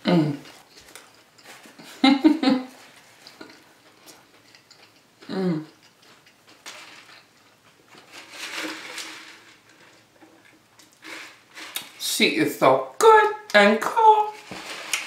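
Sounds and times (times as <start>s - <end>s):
person chewing food: 0.4s - 2.0s, 2.7s - 8.1s
person humming mm: 5.2s - 5.7s.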